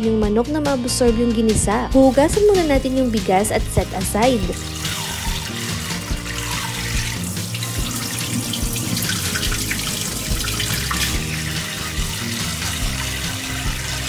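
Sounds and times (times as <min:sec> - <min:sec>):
water splashing into a sink: 0:03.4 - 0:14.0
tap running into a bowl: 0:04.5 - 0:14.0.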